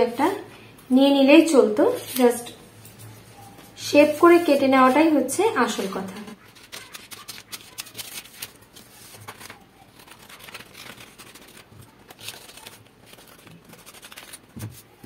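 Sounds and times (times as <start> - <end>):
scissors cutting paper: 6.2 - 15.0.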